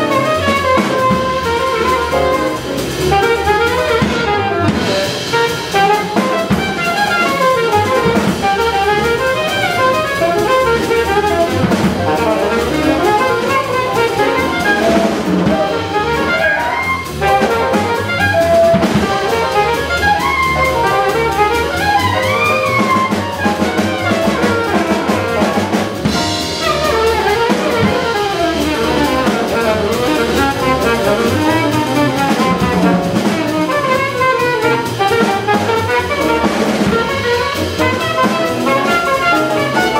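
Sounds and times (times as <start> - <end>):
alto saxophone solo: 0.0 - 39.9
drum kit: 0.0 - 39.9
piano: 0.0 - 39.9
upright bass: 0.0 - 39.9.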